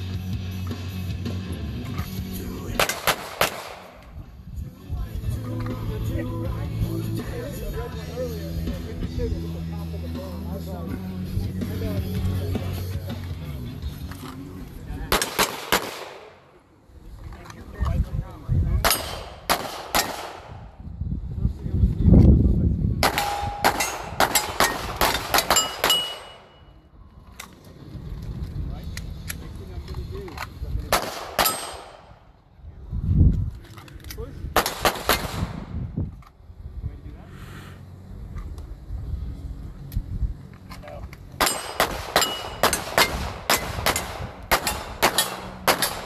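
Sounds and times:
handgun shots: 2.7 - 4.1, 15.1 - 16.4, 18.8 - 20.6, 23.0 - 26.5, 30.9 - 32.1, 34.6 - 35.6, 41.4 - 46.0
steel targets ringing: 25.4 - 26.8, 41.4 - 43.2.

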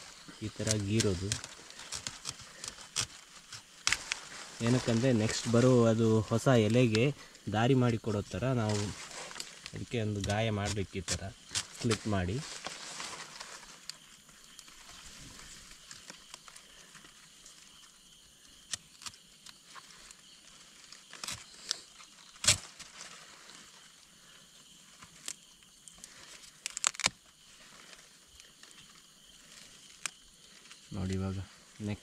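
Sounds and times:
leaf rustle: 0.0 - 32.0
plant tissue snapping and tearing: 0.6 - 5.0, 18.6 - 19.6, 21.0 - 23.1, 25.1 - 27.3.

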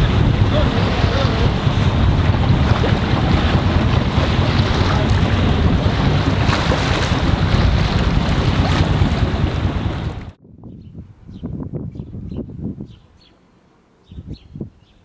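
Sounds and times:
rushing waves and water: 0.0 - 10.4
wind buffeting microphone: 0.0 - 13.3, 14.0 - 15.0.

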